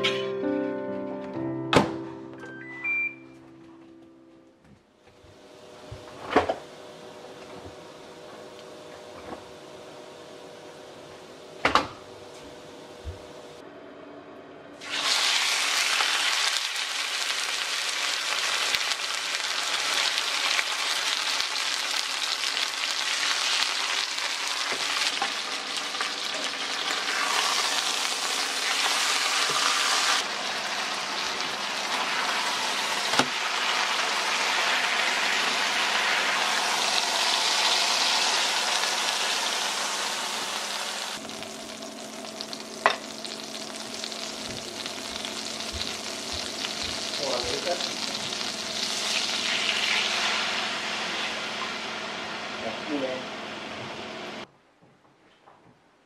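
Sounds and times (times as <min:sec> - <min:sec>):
steak sizzling in frying pan: 0:14.8 - 0:52.5.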